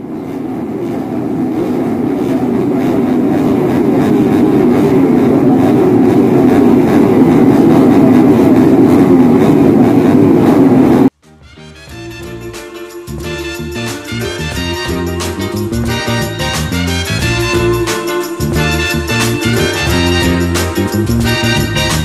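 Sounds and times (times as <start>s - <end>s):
loud rough low rumble: 0.0s - 11.1s, 12.1s - 22.0s
music: 11.2s - 22.0s.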